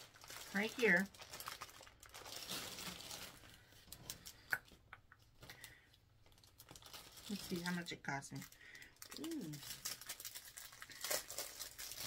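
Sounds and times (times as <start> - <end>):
plastic packaging crinkling: 0.0 - 12.0.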